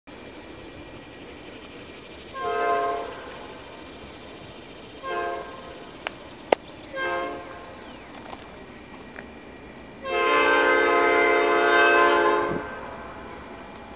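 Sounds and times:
locomotive air horn blasts: 2.3s - 3.6s, 5.0s - 5.9s, 6.9s - 7.8s, 10.0s - 13.6s.

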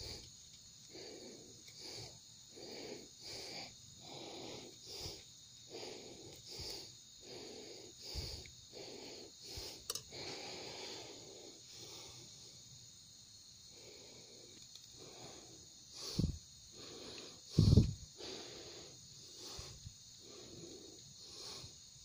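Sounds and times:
person breathing in quick puffs: 0.0s - 12.6s, 13.7s - 21.9s.

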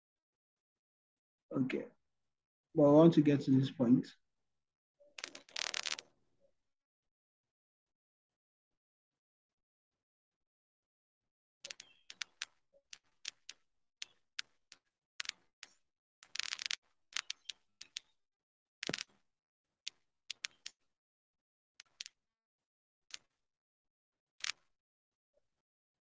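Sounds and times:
computer keyboard and mouse clicks: 11.7s - 14.6s, 16.3s - 18.1s, 18.8s - 19.2s, 19.9s - 20.8s.

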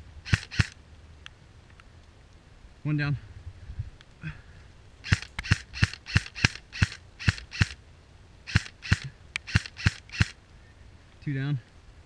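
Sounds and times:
airsoft rifle shots: 0.3s - 0.8s, 5.0s - 7.8s, 8.5s - 10.4s.

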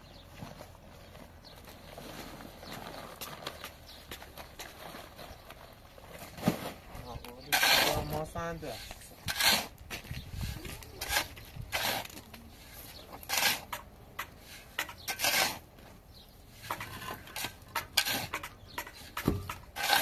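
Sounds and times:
shovel scraping through sand: 7.4s - 15.7s, 16.5s - 20.0s.

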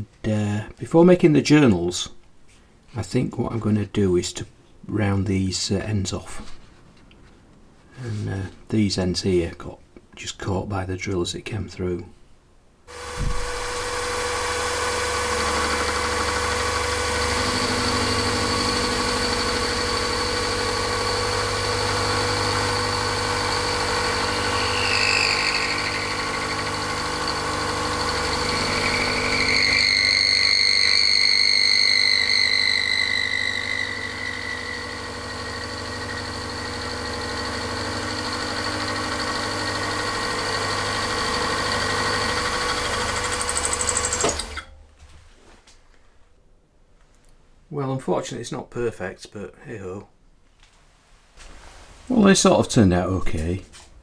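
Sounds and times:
high-pitched cutting squeal: 12.9s - 44.6s
milling machine hum: 12.9s - 44.6s.

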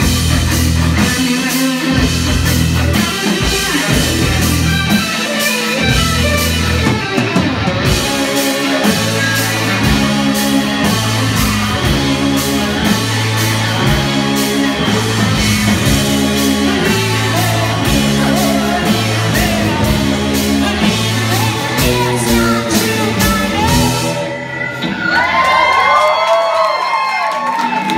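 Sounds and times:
electric bass: 0.0s - 25.4s
keyboard: 0.0s - 25.8s
electric guitar: 0.0s - 26.3s
drum kit: 0.0s - 26.7s
woman singing: 21.4s - 24.2s.

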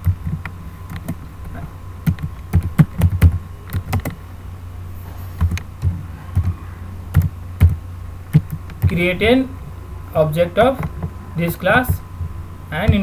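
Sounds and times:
low steady hum: 0.0s - 13.0s
keyboard typing: 2.0s - 4.2s, 5.4s - 9.0s.

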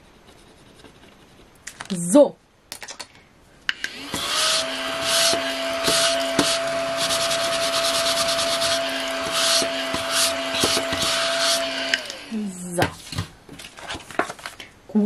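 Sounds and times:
small vacuum motor whining: 3.8s - 12.4s
brush swishing across paper: 5.9s - 11.6s.

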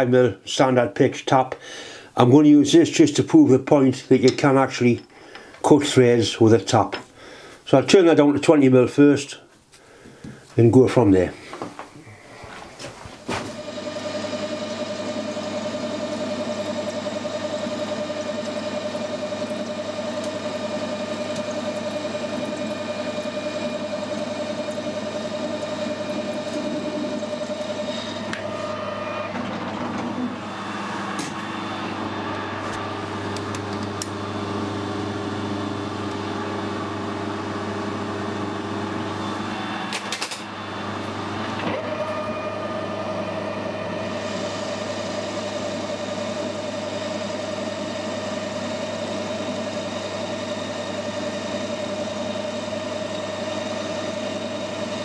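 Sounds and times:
metal lathe whine: 13.3s - 55.0s.

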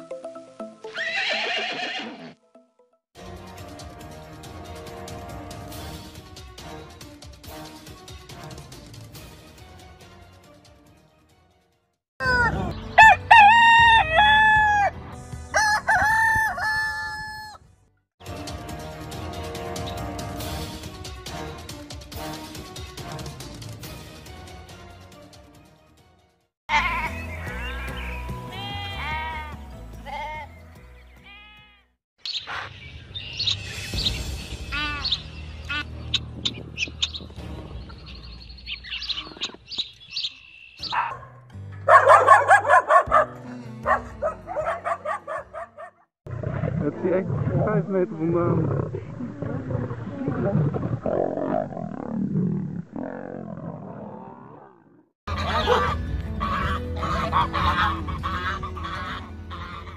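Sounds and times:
background music: 0.0s - 31.9s, 40.8s - 46.0s, 55.3s - 59.9s
rooster crowing: 13.0s - 17.6s
small birds chirping: 32.2s - 41.2s.

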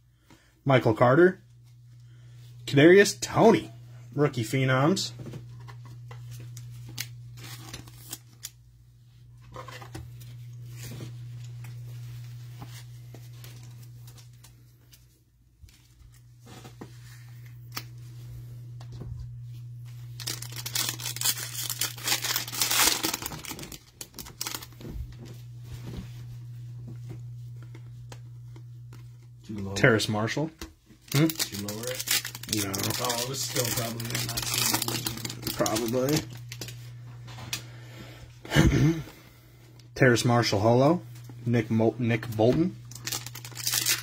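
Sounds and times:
plastic card sleeve crinkling: 5.5s - 8.6s, 19.5s - 24.9s, 31.0s - 36.9s, 42.2s - 44.0s.

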